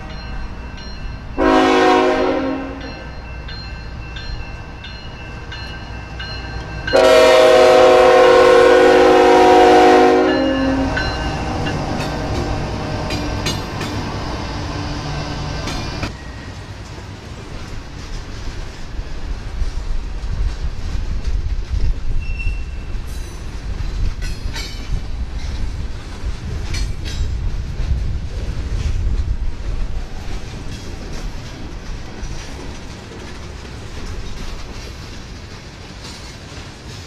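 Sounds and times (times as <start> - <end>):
crossing bell ringing: 0.0 - 14.1
train rumbling past: 0.0 - 37.0
locomotive air horn blasts: 1.4 - 3.0, 6.9 - 11.0
wheels clicking over rail joints: 10.9 - 14.4, 15.6 - 37.0.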